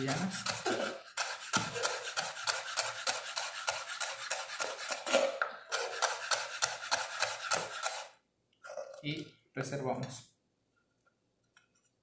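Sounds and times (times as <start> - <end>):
knife slicing on wooden board: 0.0 - 8.1.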